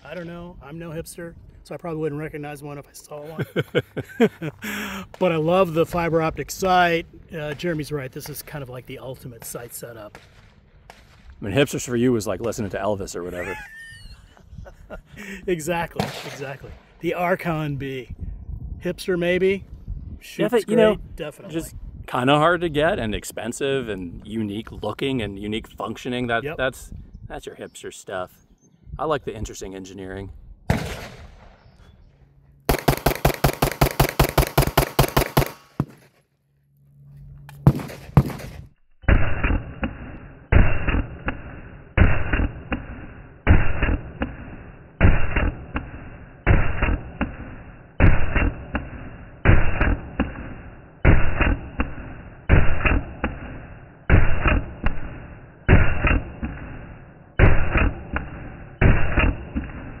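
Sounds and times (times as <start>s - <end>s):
pistol shots: 30.7s - 31.6s, 32.7s - 36.0s, 37.6s - 56.8s, 57.4s - 59.9s.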